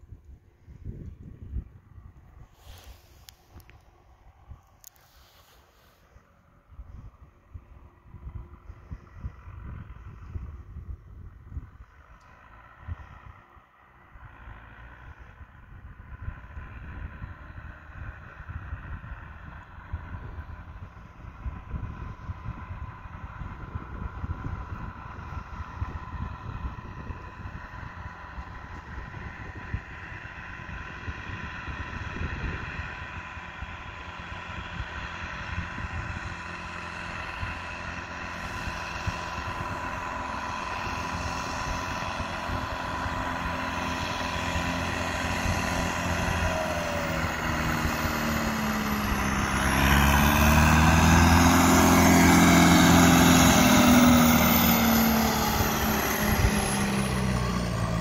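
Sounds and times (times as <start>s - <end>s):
tractor engine passing by: 0.0s - 58.0s.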